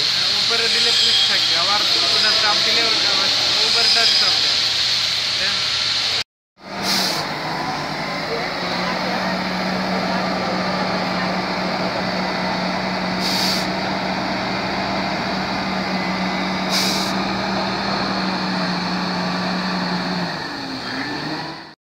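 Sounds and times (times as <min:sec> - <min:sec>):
air hissing: 0:00.0 - 0:07.4, 0:12.6 - 0:19.0
diesel engine drone: 0:00.0 - 0:21.8.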